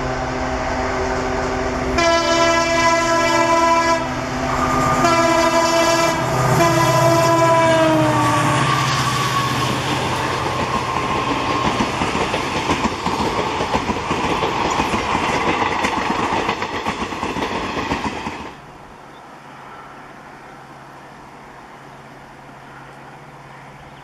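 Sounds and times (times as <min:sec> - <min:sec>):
low hum: 0:00.0 - 0:07.0
train horn: 0:00.0 - 0:11.0
train wheels clattering over rails: 0:08.9 - 0:18.6.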